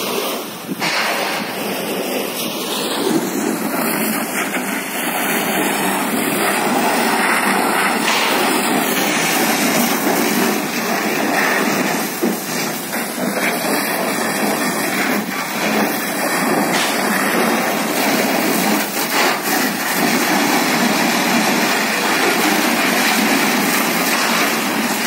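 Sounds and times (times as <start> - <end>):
fire hose jet spraying water: 0.0 - 25.0.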